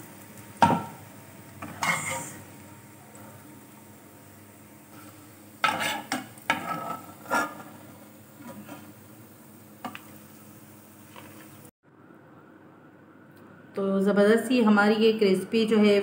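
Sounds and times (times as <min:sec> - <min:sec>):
spatula scraping frying pan: 0:01.6 - 0:02.4, 0:04.9 - 0:09.0.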